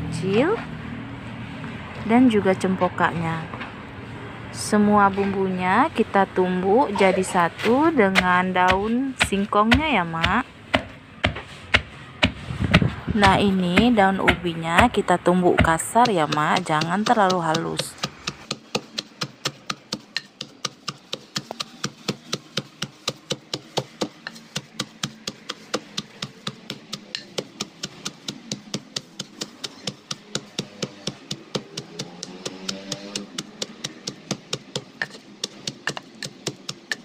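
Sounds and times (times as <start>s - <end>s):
wooden pestle pounding in mortar: 7.5s - 37.0s.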